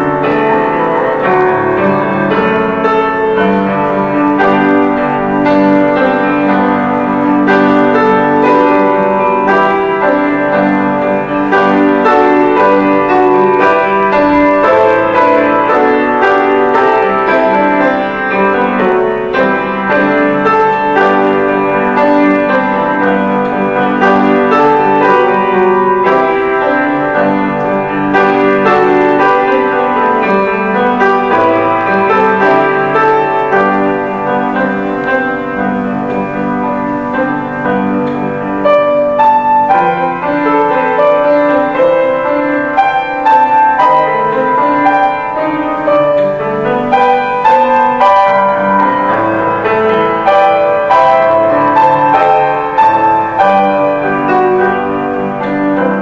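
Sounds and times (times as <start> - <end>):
grand piano playing: 0.0 - 56.0.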